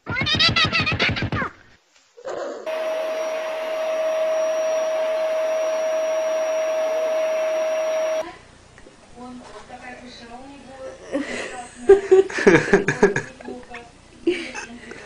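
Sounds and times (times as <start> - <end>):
appliance motor whirring: 2.7 - 8.2.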